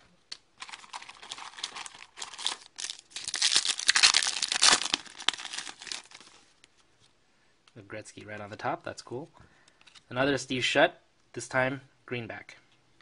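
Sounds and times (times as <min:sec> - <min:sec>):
plastic wrapper crinkling and tearing: 0:00.3 - 0:06.5.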